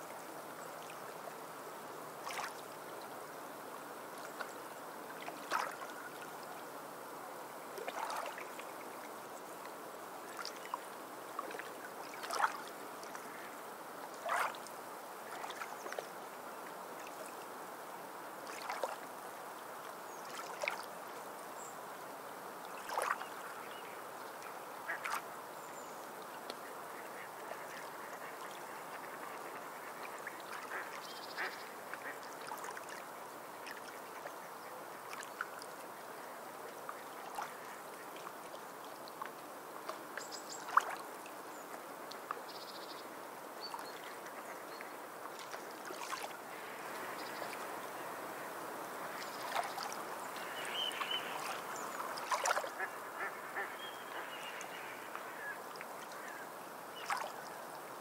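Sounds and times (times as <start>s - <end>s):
sea birds calling: 49.1s - 56.4s.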